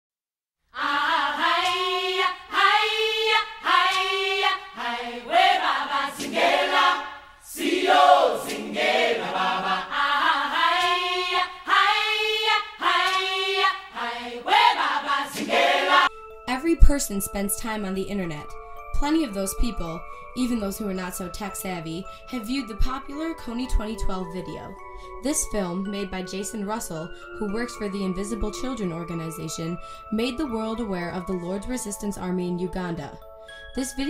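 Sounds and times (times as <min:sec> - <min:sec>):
choir singing a chant: 0:00.8 - 0:16.1.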